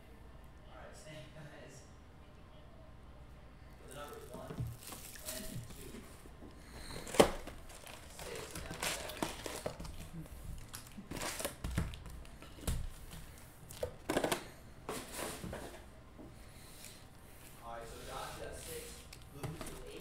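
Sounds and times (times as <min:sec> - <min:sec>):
foil packs crackling: 0:03.8 - 0:05.9, 0:06.7 - 0:12.4.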